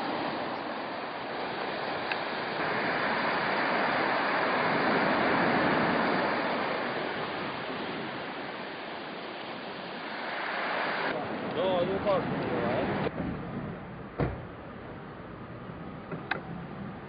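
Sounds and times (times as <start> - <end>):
sea surf washing on shore: 0.0 - 13.1.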